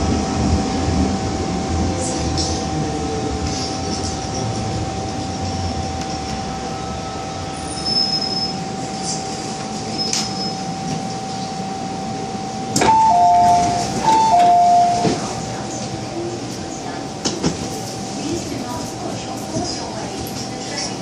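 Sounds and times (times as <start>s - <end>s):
train rumble and whine: 0.0s - 21.0s
door chime beeps: 12.8s - 15.2s.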